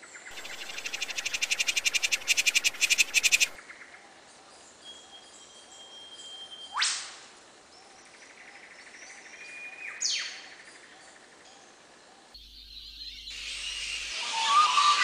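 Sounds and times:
short bird-like chirps: 0.3s - 3.6s.

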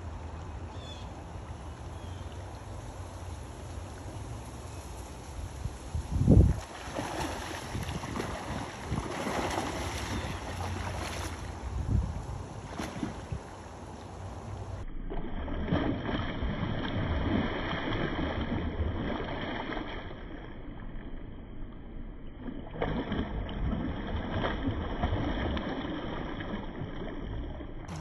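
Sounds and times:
fish splashing in shallow water: 6.4s - 28.0s.

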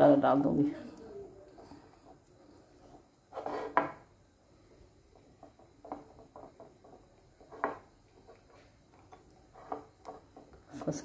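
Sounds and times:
fingers stirring wet batter: 0.8s - 3.4s, 5.0s - 10.8s.

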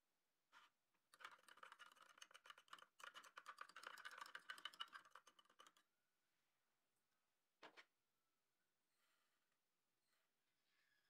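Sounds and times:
plastic spoon stirring in jar: 1.2s - 5.8s.

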